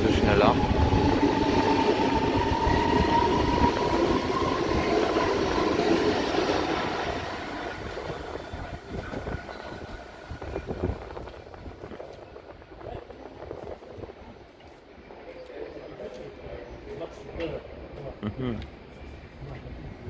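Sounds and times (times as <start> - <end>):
train wheels rumbling: 0.0 - 15.3.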